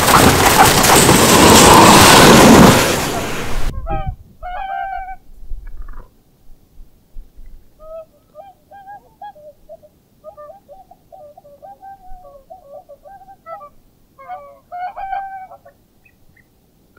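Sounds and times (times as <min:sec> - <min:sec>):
swans bugling calls: 0:01.5 - 0:05.2, 0:07.8 - 0:16.2.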